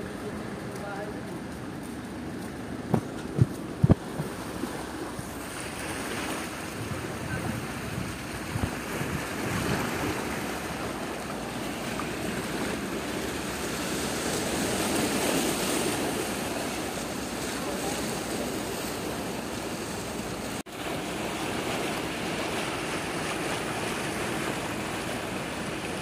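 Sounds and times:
wind blowing over microphone: 2.8 - 4.5, 6.4 - 10.8
small waves washing on rocks: 2.8 - 26.0.

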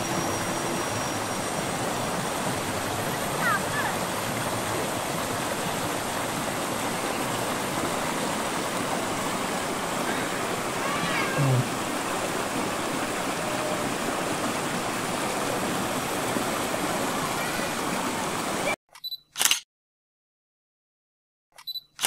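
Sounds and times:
river rushing over rocks: 0.0 - 18.7.

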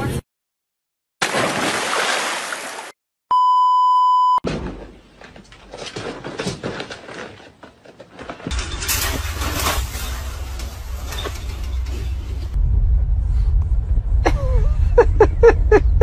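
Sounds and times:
water splashing: 1.2 - 3.0
electronic beep tone: 3.3 - 4.4.

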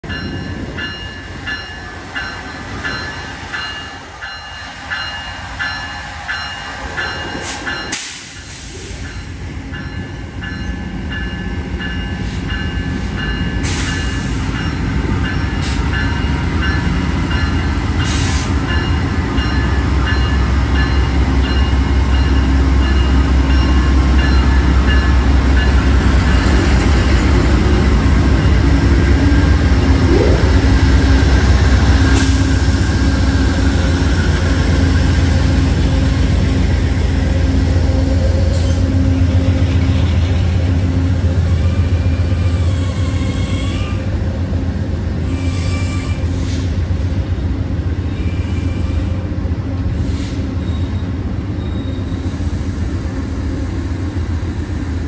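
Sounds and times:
locomotive bell ringing: 0.0 - 8.1, 9.0 - 27.3
diesel locomotive rumble: 0.0 - 55.0.

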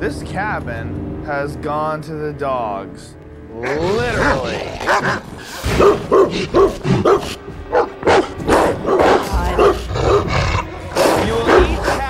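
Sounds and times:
large dog barking aggressively: 4.2 - 12.0.

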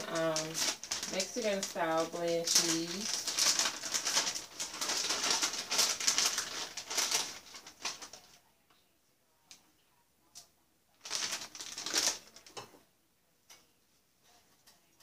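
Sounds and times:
plastic bag crinkling: 0.0 - 8.4, 11.0 - 12.6.

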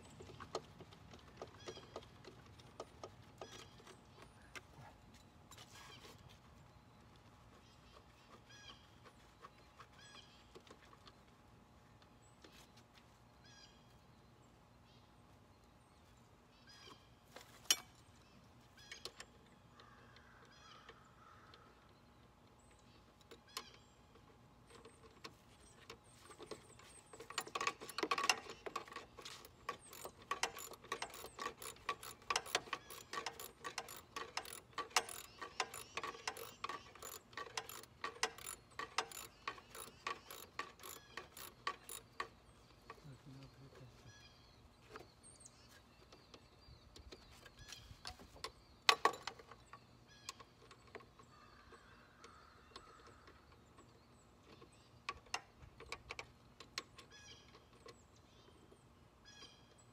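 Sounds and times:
ratchet wrench clicking: 27.2 - 42.3.

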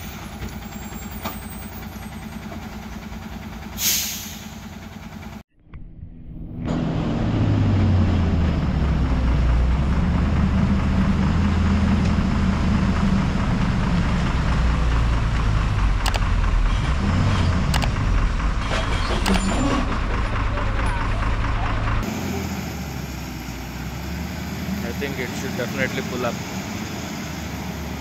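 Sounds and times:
truck diesel engine labouring: 0.0 - 5.4, 6.6 - 28.0
short clicks: 16.0 - 16.3, 17.7 - 18.0.

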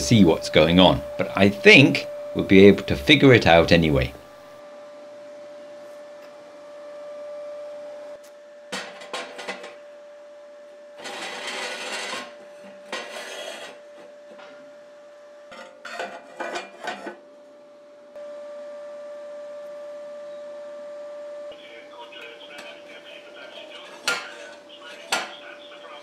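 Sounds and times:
steel pipe scraping steel: 11.0 - 14.1, 15.5 - 17.2, 23.9 - 24.6.

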